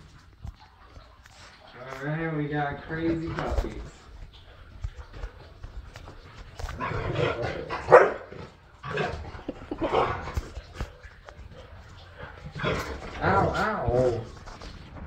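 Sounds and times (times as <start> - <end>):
dogs barking: 6.6 - 14.3.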